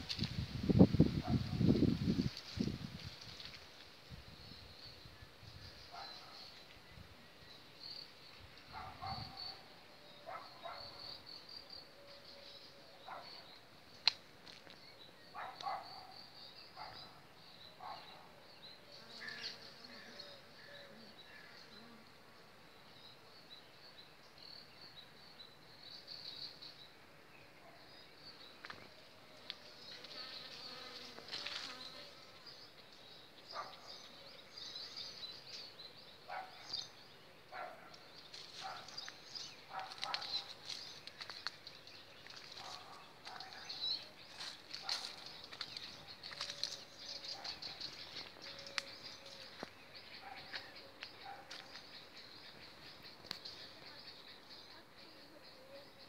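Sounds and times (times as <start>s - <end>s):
faint insect buzzing: 18.9s - 22.6s, 28.9s - 33.0s.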